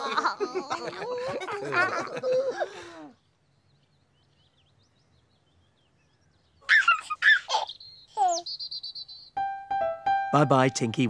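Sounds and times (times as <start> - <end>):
baby giggling: 6.7 - 8.4
high childlike voice: 8.2 - 8.4.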